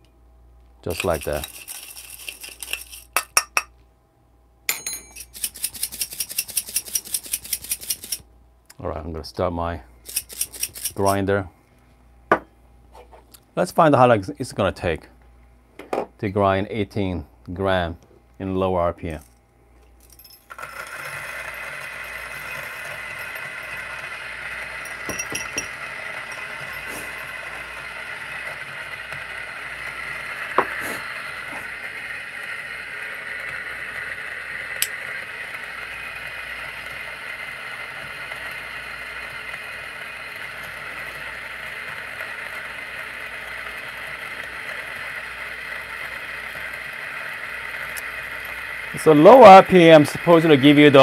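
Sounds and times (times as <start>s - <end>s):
coffee grinder grinding beans: 0.8s - 3.3s, 5.2s - 8.2s, 10.0s - 11.2s, 20.2s - 51.0s.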